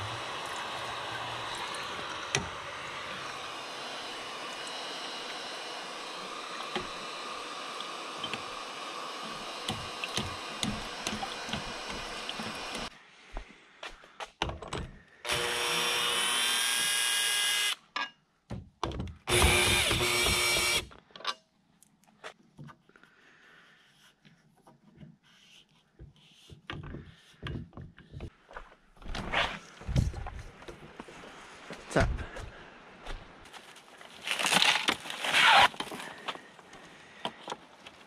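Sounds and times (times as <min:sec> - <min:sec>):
cordless drill driving screws: 0:00.0 - 0:12.9, 0:15.3 - 0:17.8, 0:19.3 - 0:20.9.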